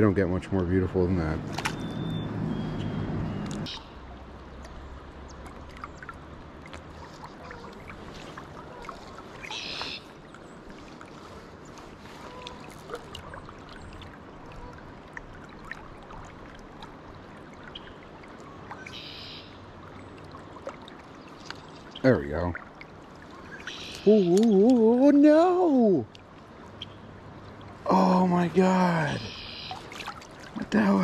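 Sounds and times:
river water flowing and lapping: 0:00.0 - 0:31.0
small ticks and drips: 0:04.4 - 0:25.0, 0:26.0 - 0:27.9.

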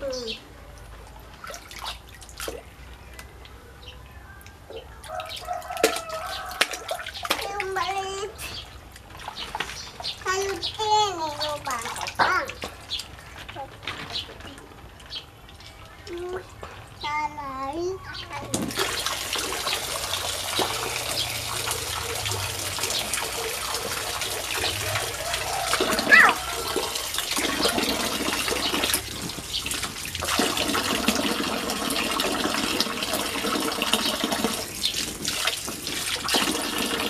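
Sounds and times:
water running into pool: 0:00.0 - 0:03.6, 0:04.4 - 0:17.0, 0:18.3 - 0:37.0.

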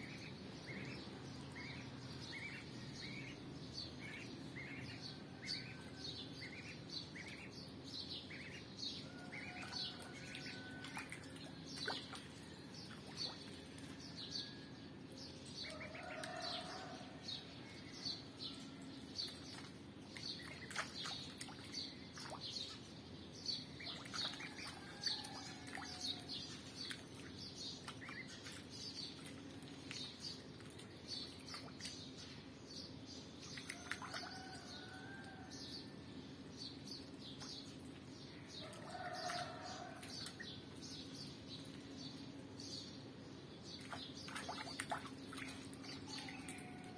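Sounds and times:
birds chirping: 0:17.6 - 0:35.4.

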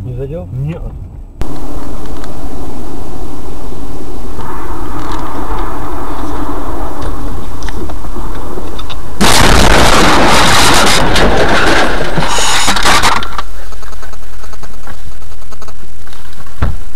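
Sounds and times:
car crash: 0:04.4 - 0:13.4
crunching and clattering impacts: 0:04.4 - 0:16.9.

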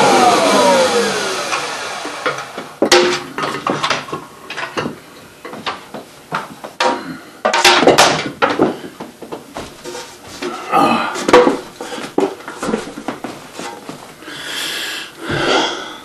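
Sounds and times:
chair knocks and bumps: 0:02.8 - 0:14.1.

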